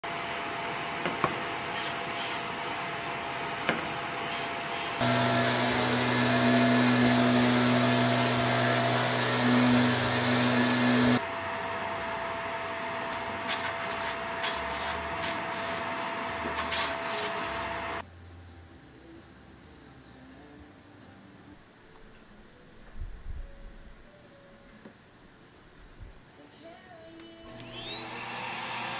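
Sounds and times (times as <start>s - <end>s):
vacuum cleaner running: 0.0s - 18.0s, 27.5s - 28.9s
orbital sander humming: 0.6s - 18.0s, 27.5s - 28.9s
hand plane strokes on wood: 4.3s - 11.2s.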